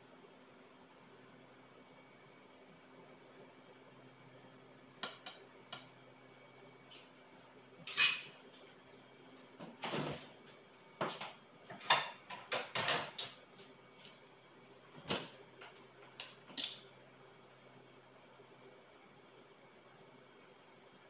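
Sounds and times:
kitchen things knocking and clinking: 11.7 - 13.4.

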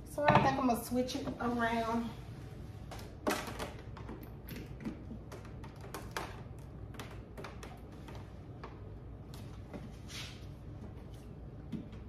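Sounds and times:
cloth wiping a countertop: 9.8 - 11.4.

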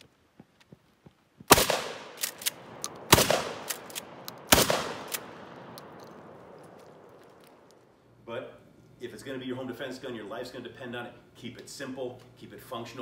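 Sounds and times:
shotgun shots echoing: 1.5 - 7.2
shotgun pump action clicks: 1.5 - 7.9.

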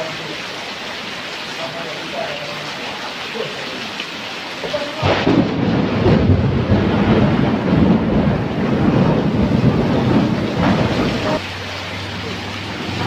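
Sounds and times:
rain falling: 0.0 - 13.0
thunder clap and rumble: 5.0 - 13.0.

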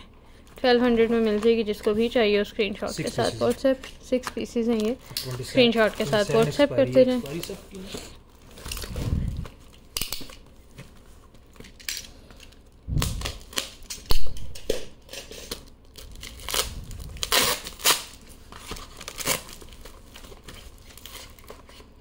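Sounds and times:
packaging crinkling and tearing: 8.3 - 22.0.

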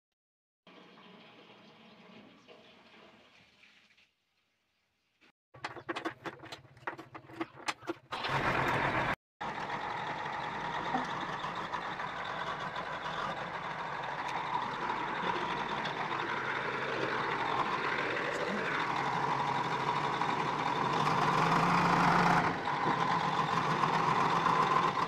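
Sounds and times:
diesel engine cranking and starting: 5.6 - 25.0
diesel engine running: 8.1 - 25.0.

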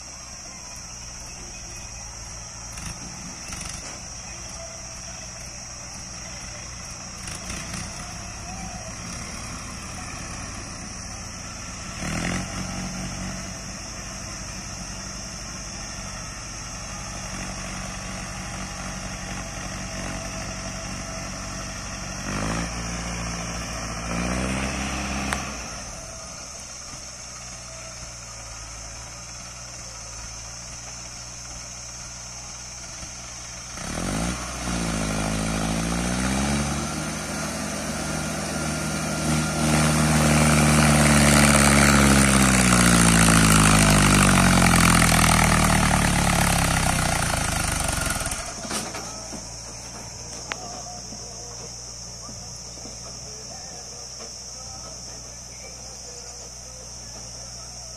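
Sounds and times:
tractor diesel engine labouring: 0.0 - 57.9.

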